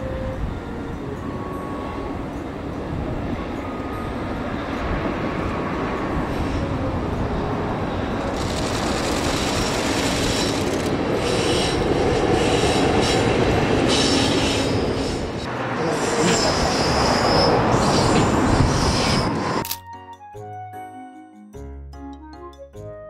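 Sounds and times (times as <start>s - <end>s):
train rumble and clatter: 0.0s - 19.7s
high-pitched wheel squeal: 15.8s - 19.6s.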